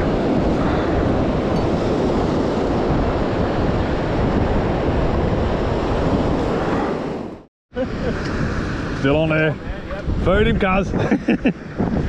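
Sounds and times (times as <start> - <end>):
surf washing onto beach: 0.0 - 12.0
wind buffeting microphone: 0.0 - 12.0.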